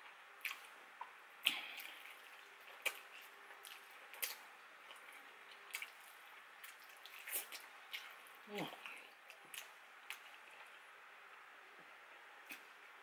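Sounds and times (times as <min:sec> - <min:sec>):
wet mouth eating sounds: 0:00.4 - 0:10.8.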